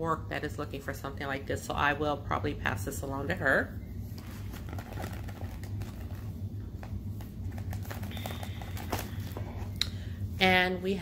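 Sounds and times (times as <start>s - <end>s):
steady low hum: 0.0s - 11.0s
handling packaging: 4.1s - 9.8s.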